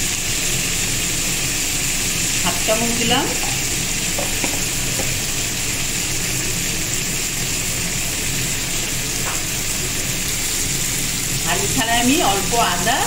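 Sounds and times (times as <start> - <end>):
vegetables sizzling in oil: 0.0 - 13.0.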